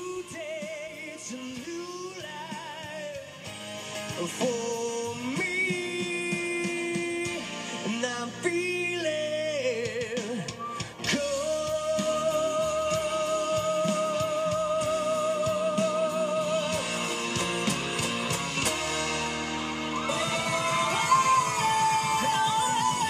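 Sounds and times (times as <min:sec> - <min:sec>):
man singing with vibrato: 0:00.0 - 0:03.5, 0:04.1 - 0:17.4, 0:20.1 - 0:23.0
strummed acoustic guitar: 0:00.0 - 0:08.6, 0:11.0 - 0:21.4.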